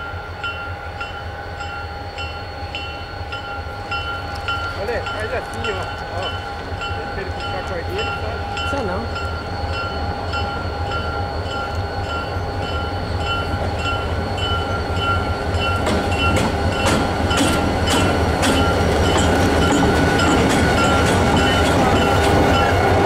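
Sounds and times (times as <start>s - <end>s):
diesel locomotives rumbling: 0.0s - 23.0s
locomotive bell ringing: 0.0s - 23.0s
wheels clicking over rail joints: 13.4s - 23.0s.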